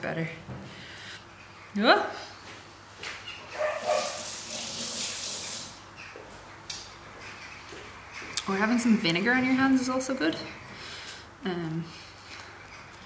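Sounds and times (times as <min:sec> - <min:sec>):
kitchen tap running: 0:03.8 - 0:05.8.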